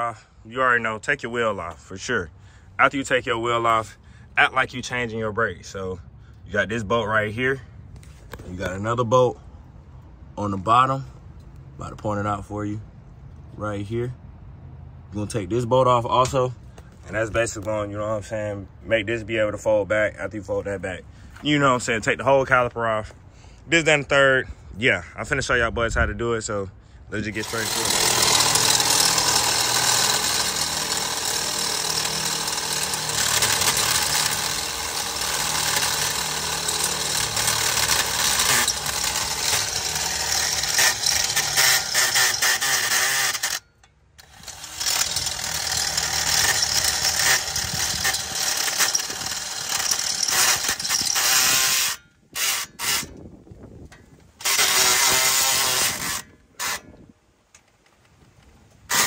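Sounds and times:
power tool running: 0:27.3 - 0:53.1, 0:54.4 - 0:56.9.

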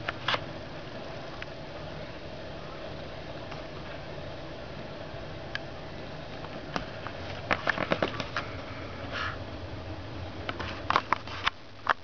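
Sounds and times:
newspaper crackling and rustling: 0:06.4 - 0:08.6.

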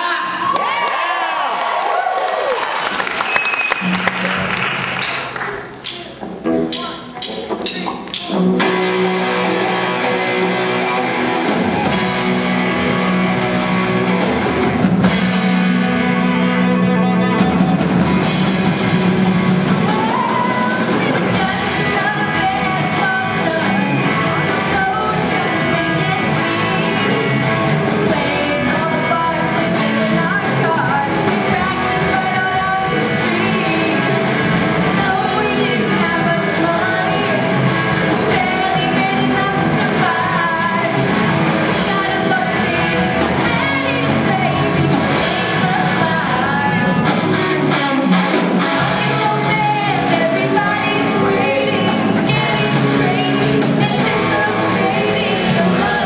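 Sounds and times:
drum kit: 0:03.7 - 0:56.0
electric guitar: 0:03.7 - 0:56.0
person singing: 0:19.7 - 0:56.0.

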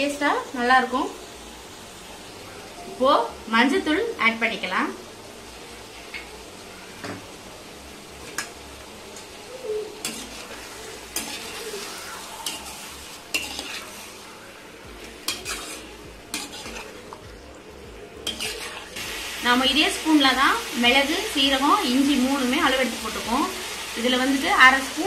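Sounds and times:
faint sizzle: 0:00.0 - 0:25.0
ladle scraping a pan: 0:10.0 - 0:14.2, 0:15.1 - 0:17.2, 0:18.2 - 0:19.0.

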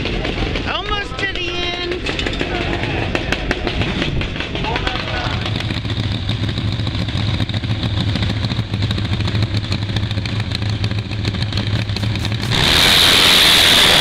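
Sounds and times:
drag motorcycle engine revving: 0:01.7 - 0:14.0
tyre spraying dirt: 0:12.0 - 0:14.0.

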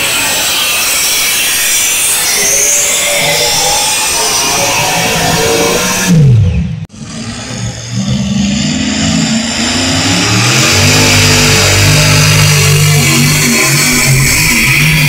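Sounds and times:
tractor engine at full throttle: 0:05.2 - 0:15.0.

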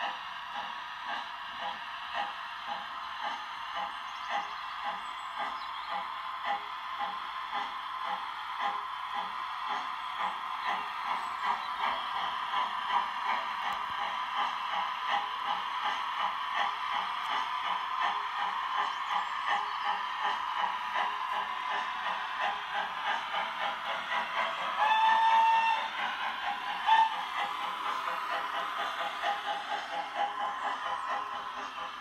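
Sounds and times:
steam exhaust chuffs: 0:00.0 - 0:32.0
steam whistle: 0:24.8 - 0:26.0.

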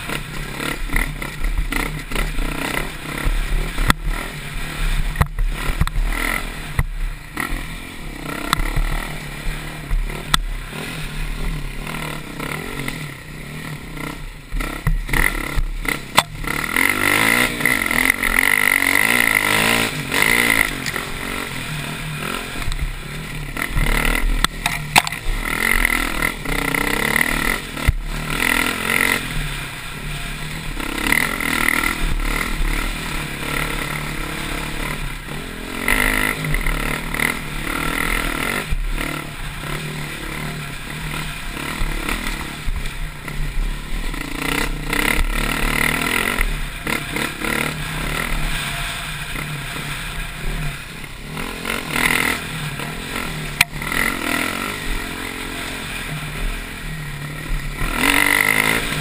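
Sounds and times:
dirt bike engine revving: 0:00.0 - 0:59.0
sharp knocks and clatter: 0:23.8 - 0:25.3.

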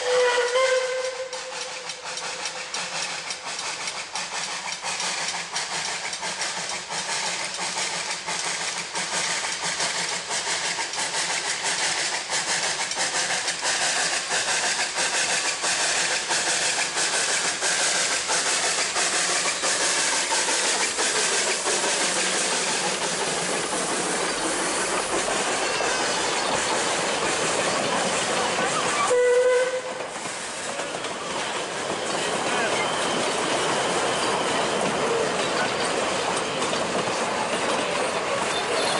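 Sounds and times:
carriages rumbling over rails: 0:00.0 - 0:38.9
steam hissing from locomotive: 0:00.0 - 0:38.9.

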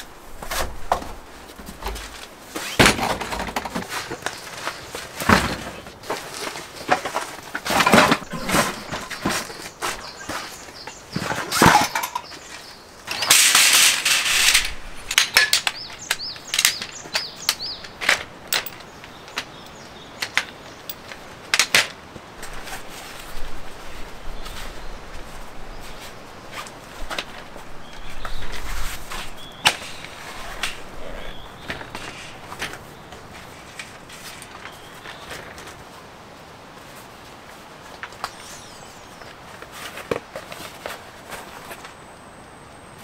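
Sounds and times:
metal frames clattering: 0:06.9 - 0:10.4, 0:11.1 - 0:18.9
folding chair poles clicking: 0:11.2 - 0:19.5.

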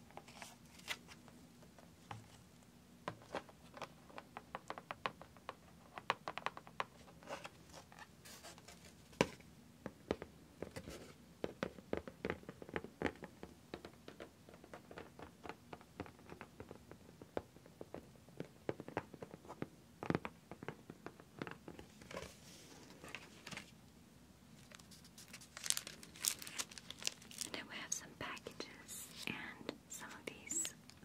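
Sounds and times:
plastic film crinkling: 0:24.6 - 0:29.3.

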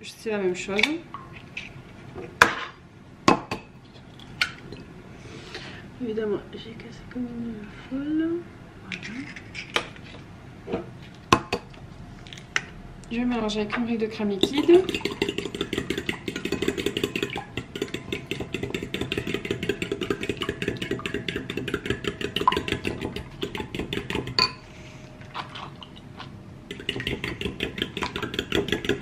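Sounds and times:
whisk clicking against ceramic bowl: 0:14.4 - 0:24.5, 0:26.7 - 0:29.0.

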